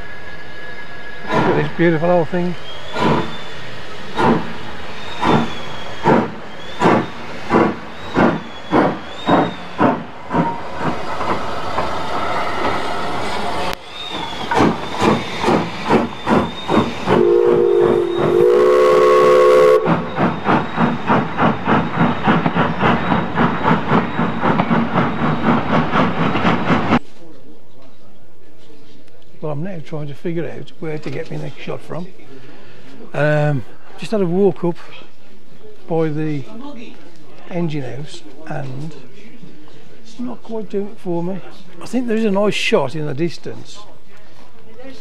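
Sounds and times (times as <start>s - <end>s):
rush of steam: 0.0s - 27.0s
steam locomotive exhaust beats: 0.0s - 27.0s
steam whistle: 13.9s - 20.1s.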